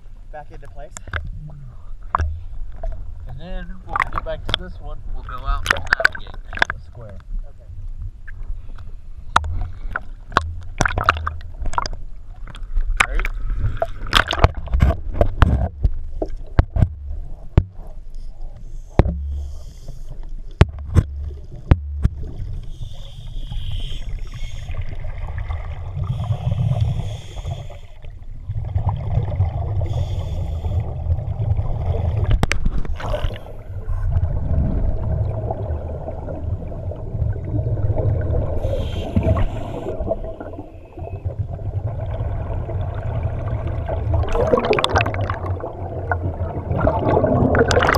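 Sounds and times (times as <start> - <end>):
muffled underwater rumble: 0.0 - 47.9
exhaled regulator bubbles hissing: 22.3 - 25.1, 25.9 - 28.1, 28.9 - 41.1.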